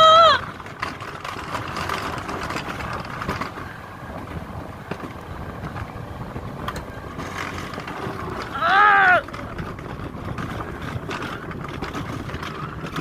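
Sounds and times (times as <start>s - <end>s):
coaster wheels rumbling on rail: 0.0s - 13.0s.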